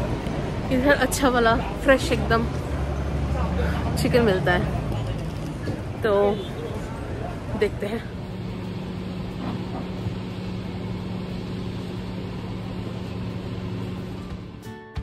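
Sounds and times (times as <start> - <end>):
busy market noise: 0.0 - 15.0
low machine hum: 7.5 - 14.7.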